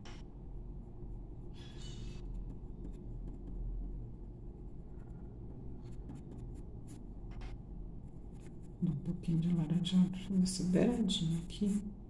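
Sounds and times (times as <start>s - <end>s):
steady low hum: 0.0s - 12.0s
pencil scratching on paper: 2.1s - 3.6s.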